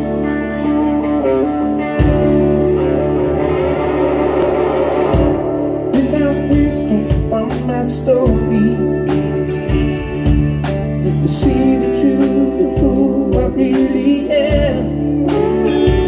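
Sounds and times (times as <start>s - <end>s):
bass guitar: 0.0s - 16.0s
drum kit: 0.0s - 16.0s
electric guitars: 0.0s - 16.0s.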